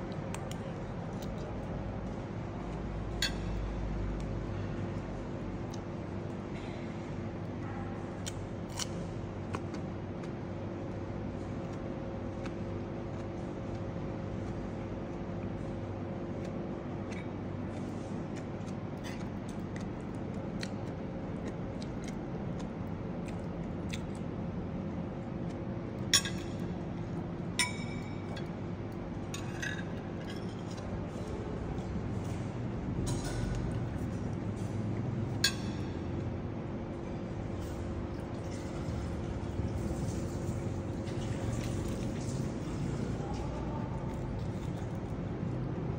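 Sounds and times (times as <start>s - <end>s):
steady low hum: 0.0s - 45.9s.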